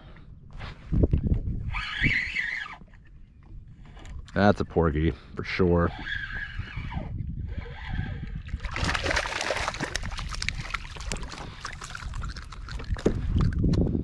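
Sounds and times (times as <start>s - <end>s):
fish splashing at water surface: 8.6s - 13.6s.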